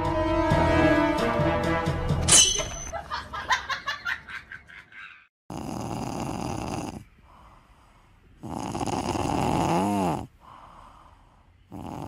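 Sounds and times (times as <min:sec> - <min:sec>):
cat snoring: 0:05.5 - 0:10.6, 0:11.7 - 0:12.0.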